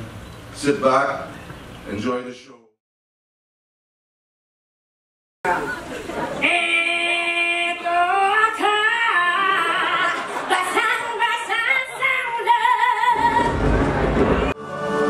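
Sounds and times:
woman singing with vibrato: 6.4s - 13.8s
band playing deep low sound: 13.2s - 15.0s.

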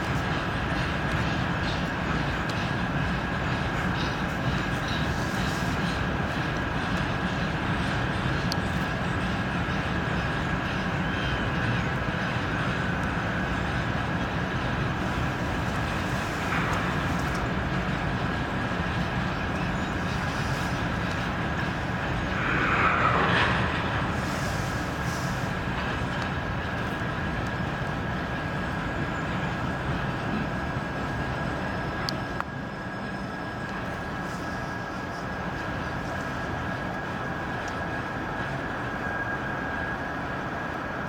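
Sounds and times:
train wheels on rails: 0.0s - 41.0s
falling tone: 22.3s - 24.9s.

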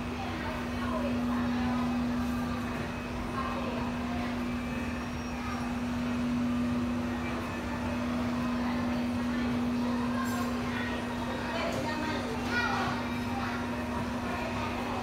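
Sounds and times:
faint indistinct voices: 0.0s - 15.0s
steady low hum: 0.0s - 15.0s.

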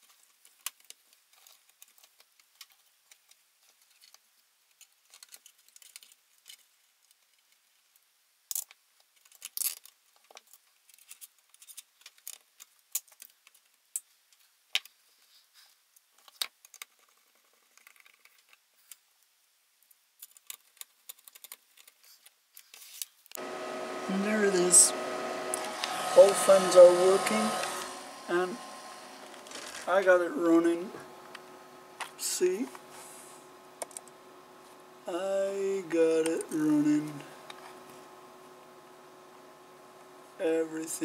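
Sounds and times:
small metal clicks and rattles: 0.0s - 7.9s, 8.5s - 15.0s, 16.0s - 19.0s, 19.8s - 23.4s.

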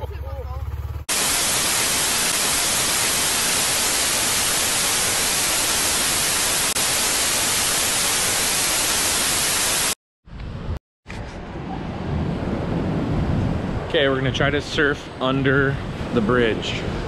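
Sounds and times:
white-noise static hiss: 1.1s - 10.0s.

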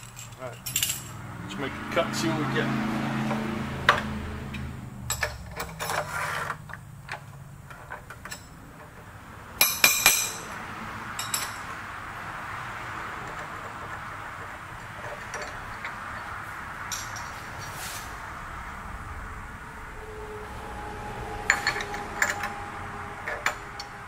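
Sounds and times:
steel tools clinking and knocking: 0.0s - 1.2s, 3.3s - 11.8s, 13.2s - 17.8s, 21.4s - 22.6s, 23.2s - 24.0s.

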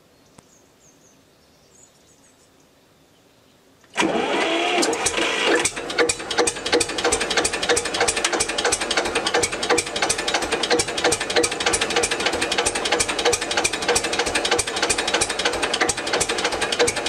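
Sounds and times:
starter cranking whine: 3.9s - 17.0s
diesel engine knocking: 5.6s - 17.0s.

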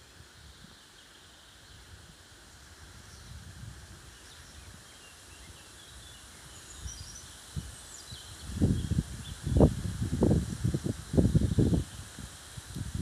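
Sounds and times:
faint birdsong chirps: 0.0s - 9.8s
outdoor hiss: 0.0s - 13.0s
wind buffeting microphone: 2.9s - 4.8s, 6.7s - 13.0s.

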